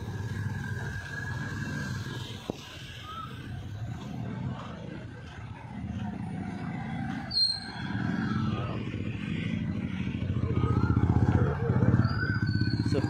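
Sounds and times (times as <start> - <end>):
motorcycle engine throbbing: 0.0 - 13.0
high-pitched squeal: 10.4 - 13.0.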